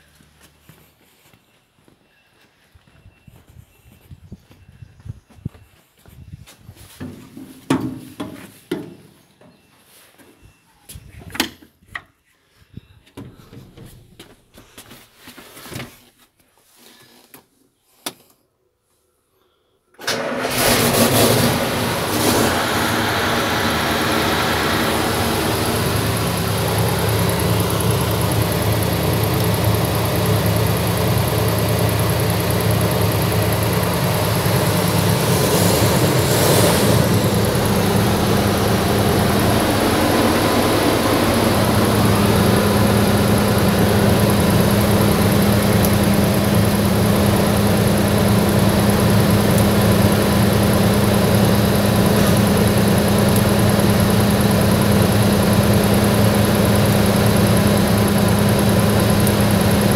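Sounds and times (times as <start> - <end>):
diesel engine starting and running: 20.0 - 59.9.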